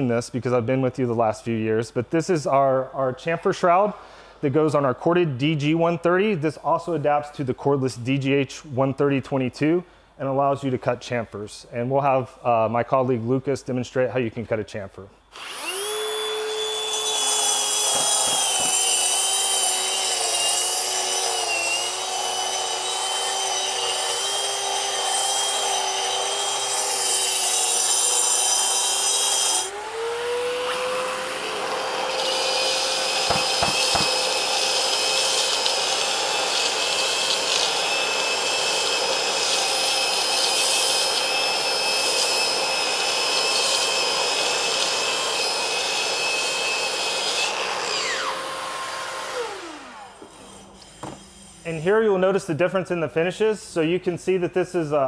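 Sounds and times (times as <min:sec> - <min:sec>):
concrete grinder whining: 0:15.4 - 0:51.7.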